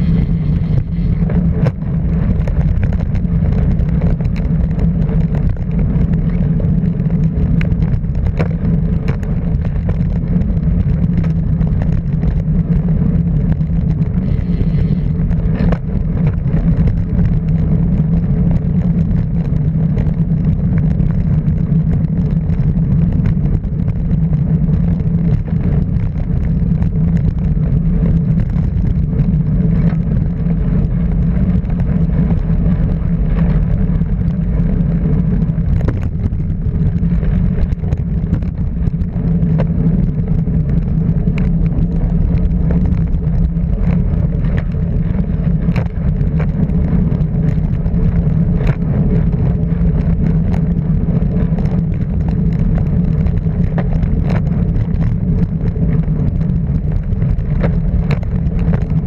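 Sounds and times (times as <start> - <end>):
rushing noise: 0.0 - 18.2
motorcycle engine running: 0.0 - 59.0.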